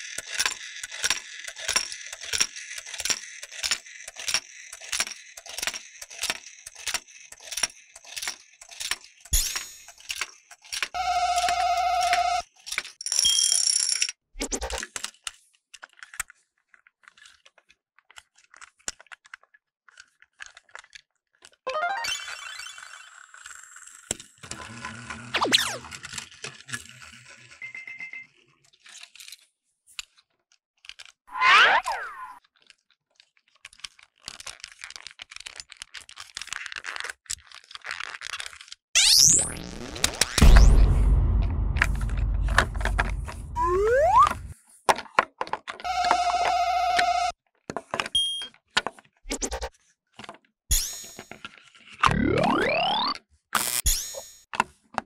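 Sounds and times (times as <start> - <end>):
toy motor and gears whirring: 0.0 - 40.5, 45.8 - 47.4, 49.2 - 49.8, 50.7 - 54.5
electronic toy tones: 11.0 - 12.4, 21.7 - 22.9, 43.6 - 44.5, 45.9 - 47.3, 48.2 - 48.5, 52.1 - 53.2
sweeping sound effect: 40.4 - 44.5.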